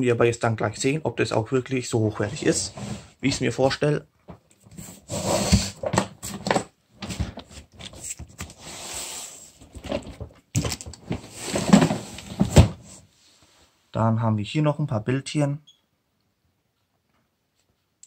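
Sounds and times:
cardboard box scraping and rustling: 0:04.7 - 0:06.0, 0:11.2 - 0:13.0.

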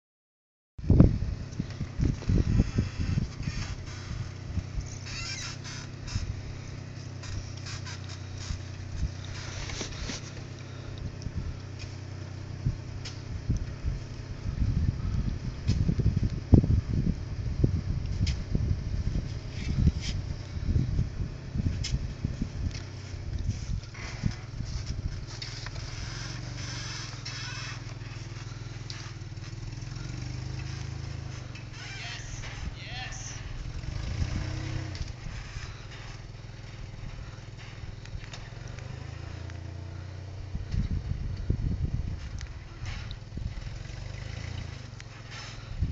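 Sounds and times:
truck engine idling: 0:00.9 - 0:45.9
light clicks and scrapes: 0:06.9 - 0:12.1, 0:19.3 - 0:20.3, 0:22.6 - 0:31.8.

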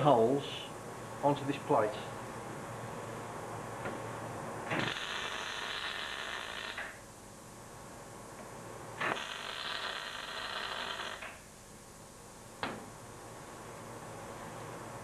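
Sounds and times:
electric arc welding: 0:04.7 - 0:07.0, 0:09.0 - 0:11.4.

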